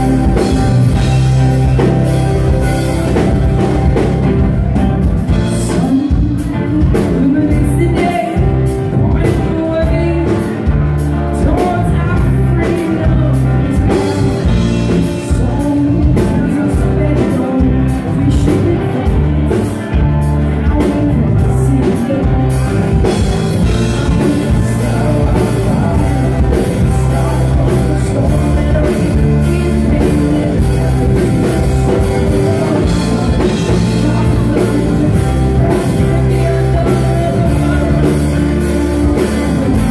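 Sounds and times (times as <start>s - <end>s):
drum kit with cymbals: 0.0s - 9.9s
electric bass guitar: 0.0s - 39.9s.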